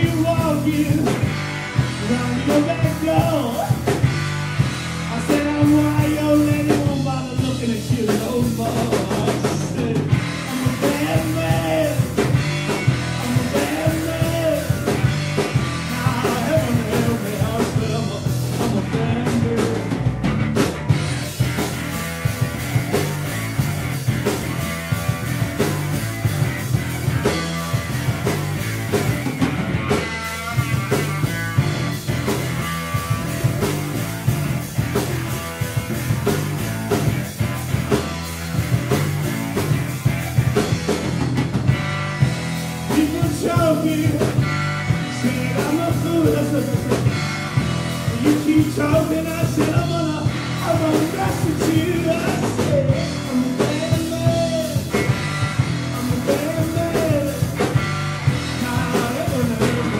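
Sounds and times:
man singing: 0:00.0 - 0:04.1, 0:05.0 - 0:20.2, 0:42.8 - 0:47.2, 0:47.9 - 0:59.9
live rock band playing: 0:00.0 - 0:59.9.

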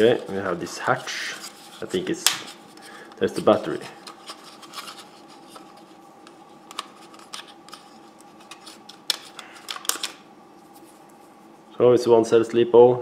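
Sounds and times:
plastic clicking and rubbing: 0:01.8 - 0:10.2.

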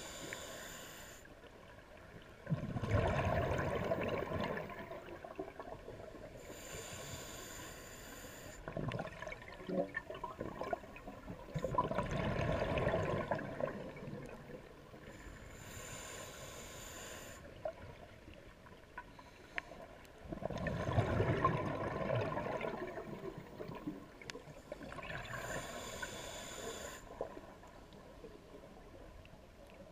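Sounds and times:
regulator hissing inhale: 0:00.0 - 0:01.3, 0:06.4 - 0:08.7, 0:15.0 - 0:17.6, 0:25.3 - 0:27.3
exhaled bubbles gurgling: 0:02.3 - 0:06.4, 0:08.6 - 0:15.1, 0:20.2 - 0:26.3.

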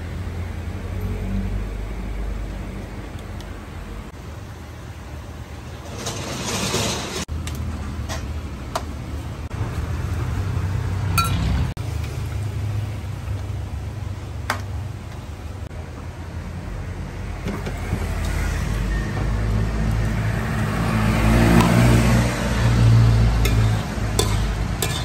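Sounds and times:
ladle clinking against woks: 0:23.4 - 0:25.0.

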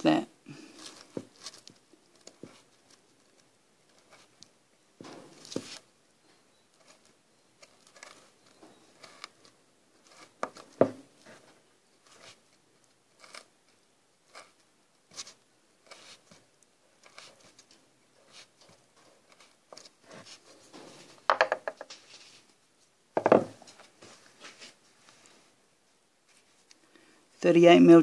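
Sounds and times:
louder knocks: 0:23.2 - 0:23.6.

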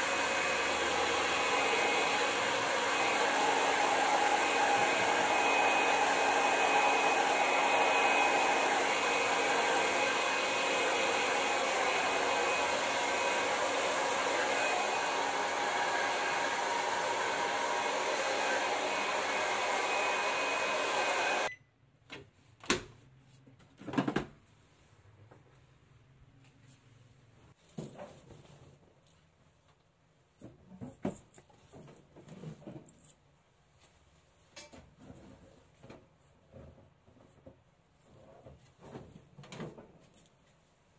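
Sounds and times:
hair dryer blowing: 0:00.0 - 0:21.5.

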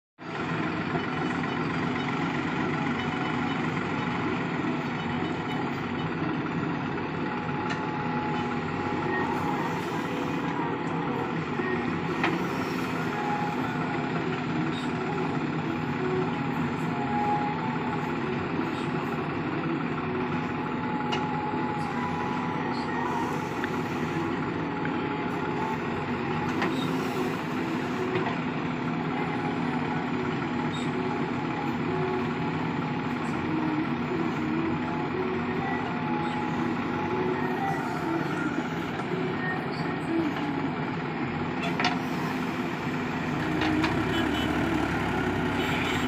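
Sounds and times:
diesel engine running under load: 0:00.2 - 0:46.0
backhoe digging and dumping soil: 0:41.5 - 0:45.6.

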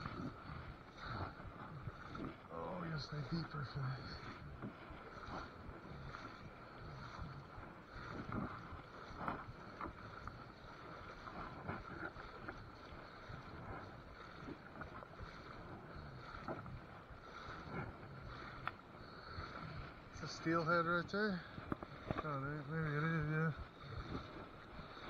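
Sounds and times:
river water sloshing around legs: 0:00.0 - 0:25.0
wind on microphone: 0:03.4 - 0:20.2, 0:23.1 - 0:25.0.

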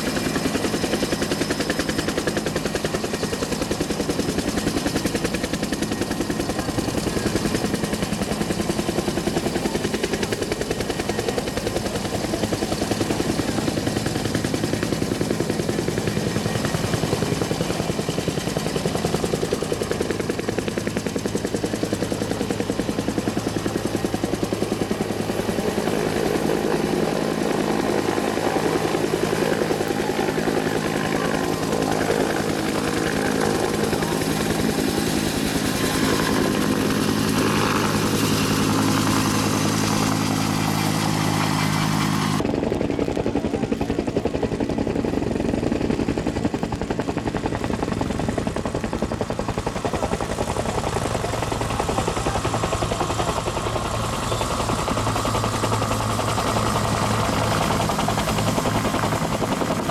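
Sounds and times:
helicopter rotor blade slap: 0:27.6 - 0:46.9.

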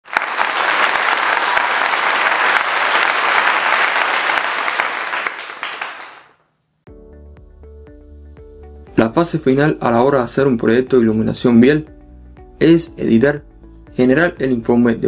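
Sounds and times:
crowd applauding: 0:00.0 - 0:06.4.

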